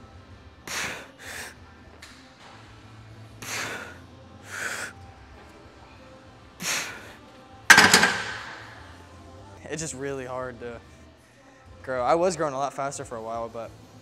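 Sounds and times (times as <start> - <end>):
barbell clanking onto metal hooks: 7.7 - 8.9.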